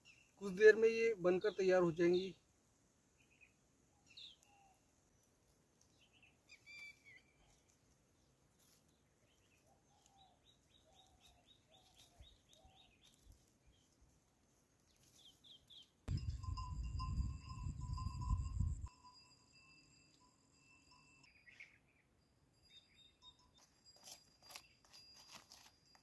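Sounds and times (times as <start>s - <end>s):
bird chirps: 5.9s - 7.7s, 21.2s - 25.1s.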